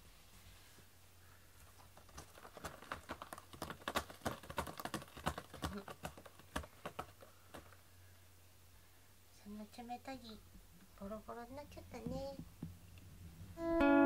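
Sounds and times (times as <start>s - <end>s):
cat scratching cardboard: 1.6s - 7.9s.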